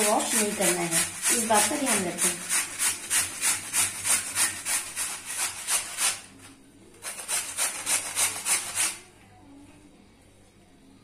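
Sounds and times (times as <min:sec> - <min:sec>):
potato rasping on a grater: 0:00.0 - 0:06.4, 0:07.0 - 0:09.1.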